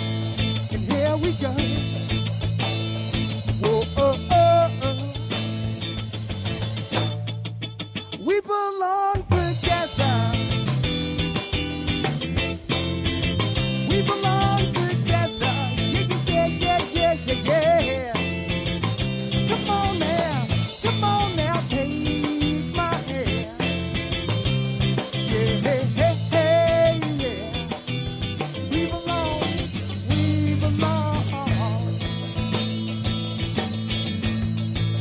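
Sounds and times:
man singing: 0:00.0 - 0:02.2, 0:03.5 - 0:05.4, 0:08.2 - 0:10.8, 0:13.8 - 0:18.4, 0:19.3 - 0:23.9, 0:25.0 - 0:27.9, 0:28.5 - 0:32.1
drum kit: 0:00.0 - 0:07.8, 0:09.2 - 0:35.0
bass guitar: 0:00.0 - 0:08.6, 0:09.2 - 0:35.0
electric guitar: 0:00.0 - 0:35.0.

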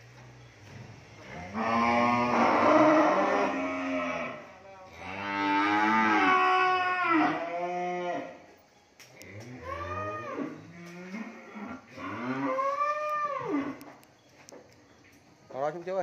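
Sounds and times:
cattle mooing: 0:01.2 - 0:08.4, 0:09.2 - 0:13.9.

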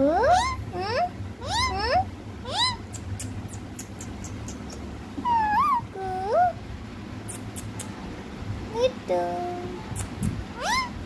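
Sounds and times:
parakeet calling: 0:00.2 - 0:06.6, 0:10.0 - 0:11.0.

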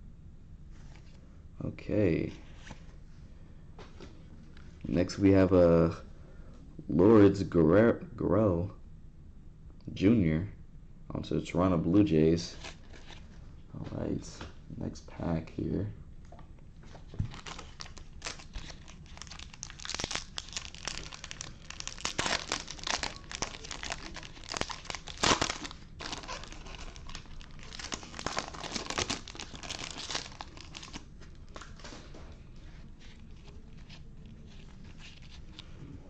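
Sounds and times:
foil wrapper tearing and crinkling: 0:17.3 - 0:31.9.

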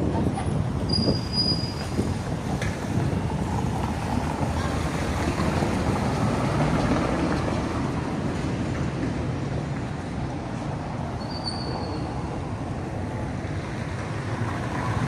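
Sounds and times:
wind on microphone: 0:00.0 - 0:08.2
traffic rumble: 0:00.0 - 0:15.0
high squeal: 0:00.9 - 0:02.0, 0:11.2 - 0:12.2.

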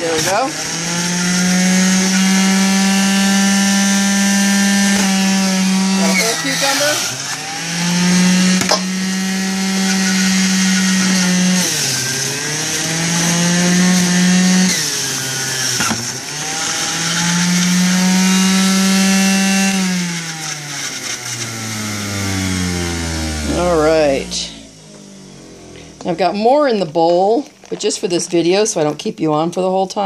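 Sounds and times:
juicer motor whine: 0:00.0 - 0:26.1.

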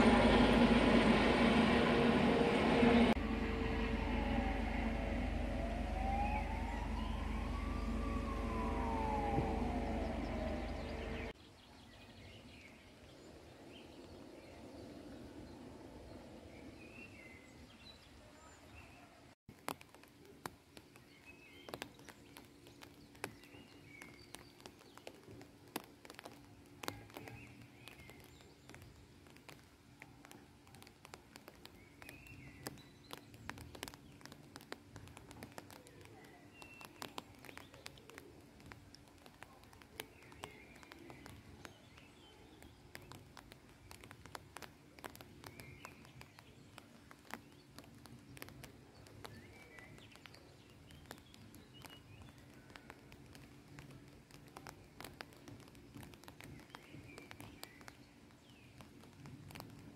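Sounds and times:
faint steady hum: 0:00.0 - 0:11.3
bird chirping: 0:02.8 - 0:19.2.

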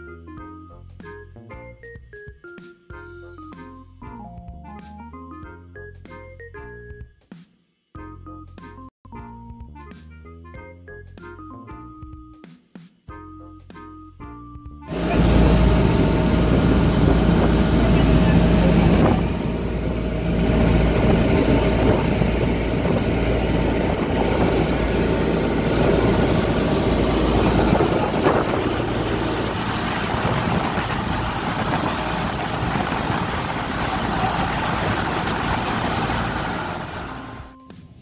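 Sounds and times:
boat engine running: 0:14.9 - 0:37.5
water rushing along hull: 0:14.9 - 0:37.5.

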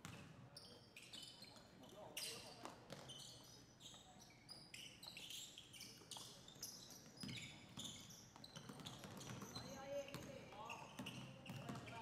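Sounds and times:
sneakers squeaking on hardwood: 0:07.2 - 0:12.0.

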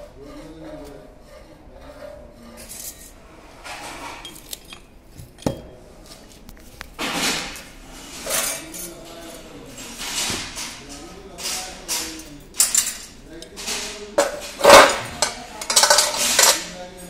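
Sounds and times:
metal plate clattering and scraping: 0:01.2 - 0:04.4, 0:13.6 - 0:16.7.

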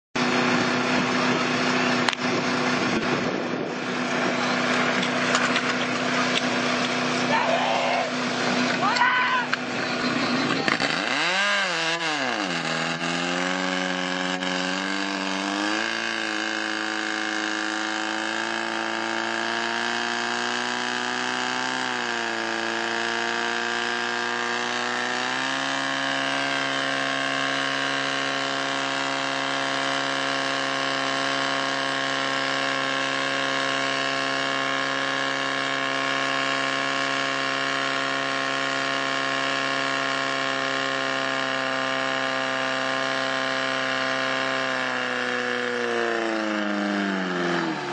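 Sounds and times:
fire pump engine: 0:00.2 - 0:47.9.

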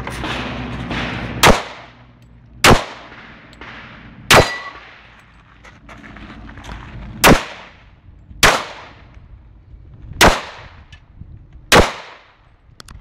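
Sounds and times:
pistol shots: 0:00.3 - 0:02.0, 0:02.6 - 0:05.1, 0:07.2 - 0:07.8, 0:08.4 - 0:09.0, 0:10.2 - 0:10.8, 0:11.7 - 0:12.4.

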